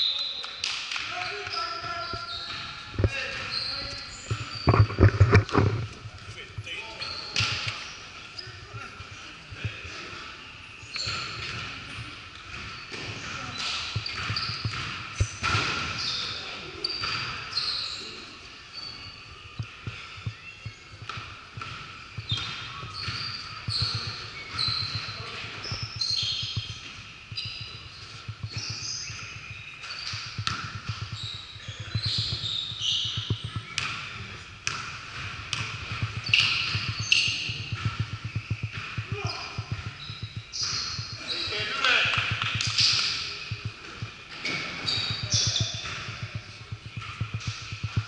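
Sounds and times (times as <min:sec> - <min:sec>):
sneakers squeaking: 0:00.0 - 0:48.0
basketball bouncing on hardwood floor: 0:12.5 - 0:15.9, 0:29.9 - 0:41.2, 0:42.2 - 0:48.0.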